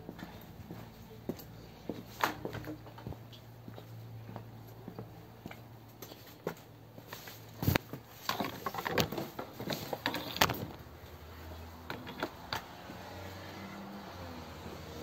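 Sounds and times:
wood pieces rubbing and clicking: 7.7 - 10.8, 11.8 - 12.8.

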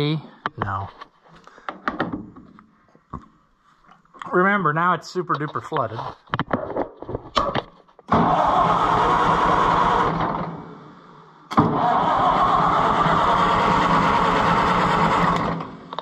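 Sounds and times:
starter motor cranking engine: 8.1 - 10.6, 11.5 - 16.0.

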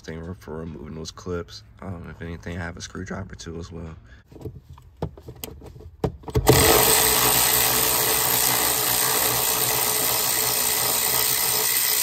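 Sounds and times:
power tool running: 6.4 - 12.0.

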